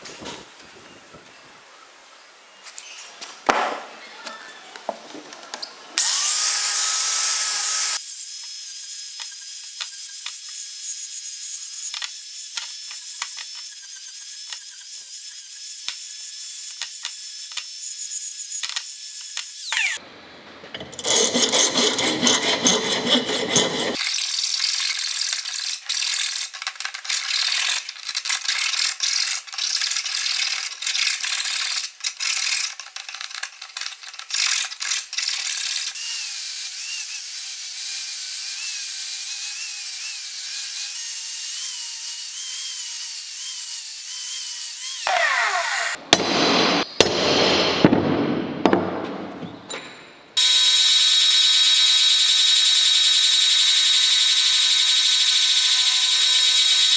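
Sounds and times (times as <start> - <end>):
angle grinder grinding metal: 6.0 - 20.0, 20.8 - 46.8, 50.4 - 56.9
hand file rasping metal: 20.9 - 24.0.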